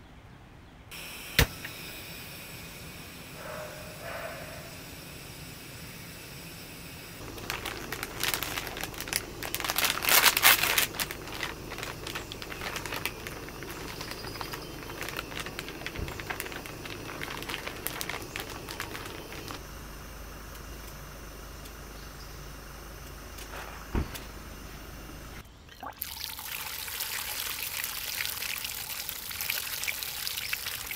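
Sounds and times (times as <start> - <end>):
packaging crinkling and rustling: 7.2 - 19.6.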